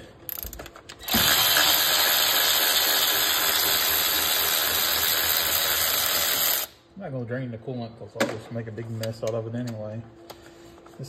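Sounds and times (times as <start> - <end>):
power ratchet running: 0.3 - 6.8.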